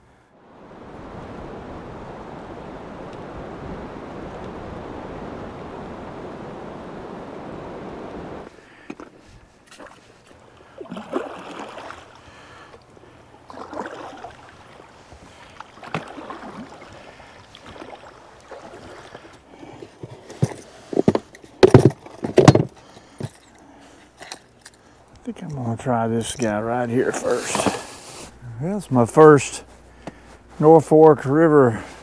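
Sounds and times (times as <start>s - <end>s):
water swishing from paddle strokes: 9.0s - 21.0s, 27.0s - 28.4s.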